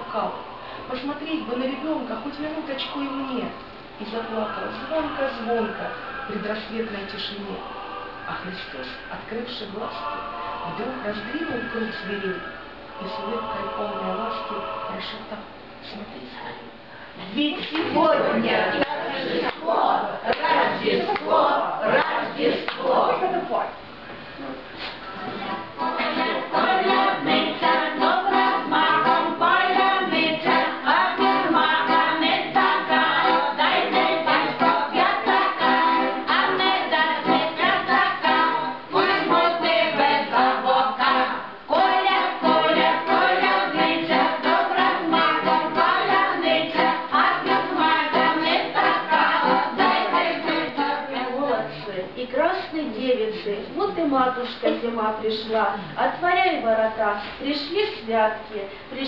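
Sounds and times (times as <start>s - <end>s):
women singing folk song: 25.4s - 51.8s
button accordion: 25.8s - 50.7s.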